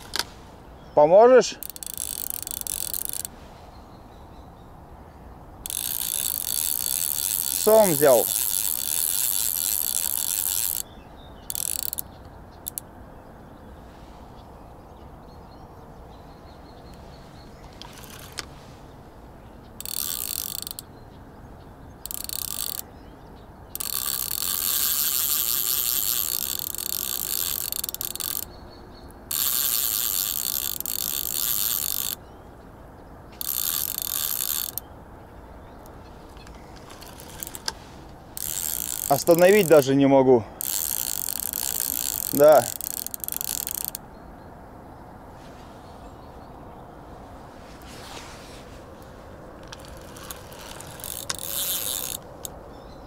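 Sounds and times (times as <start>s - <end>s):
fishing reel drag clicking: 1.6s - 3.4s, 5.6s - 12.9s, 17.6s - 18.5s, 19.8s - 20.9s, 22.0s - 22.9s, 23.7s - 28.6s, 29.3s - 32.2s, 33.4s - 34.9s, 35.8s - 44.0s, 49.6s - 52.6s.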